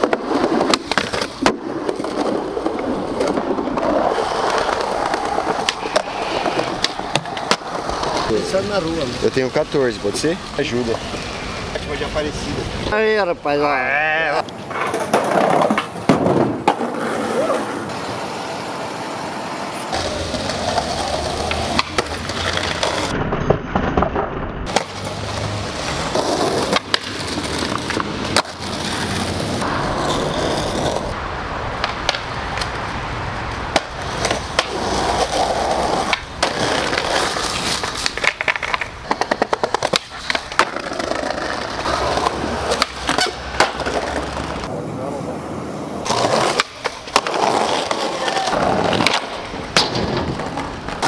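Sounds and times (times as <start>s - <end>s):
skateboard cracks landing: 0.0s - 8.3s, 14.7s - 17.0s, 20.4s - 25.1s, 26.2s - 29.2s, 33.7s - 44.7s, 46.1s - 51.0s
skateboards rolling on concrete: 0.0s - 51.0s.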